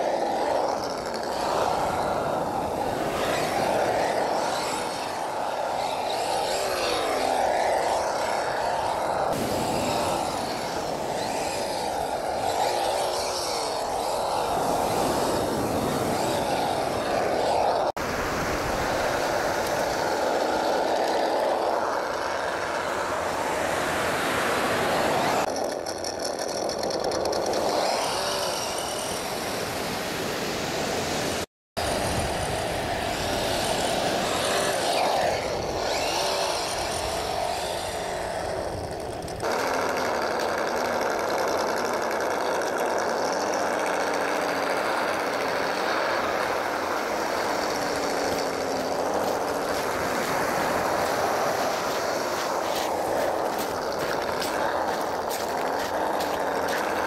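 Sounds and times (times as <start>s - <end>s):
toy truck electric motor buzzing: 0.0s - 17.9s, 18.6s - 30.0s, 31.8s - 57.0s
surf: 0.0s - 25.5s
wind noise: 0.0s - 25.7s, 27.2s - 39.5s, 45.9s - 57.0s.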